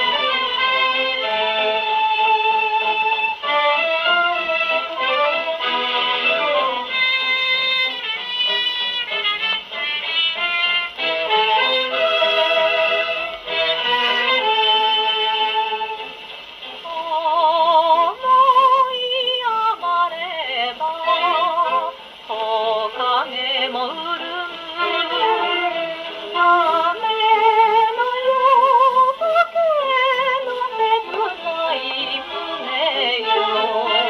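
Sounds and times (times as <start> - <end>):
woman singing on old record: 0.0 - 34.0.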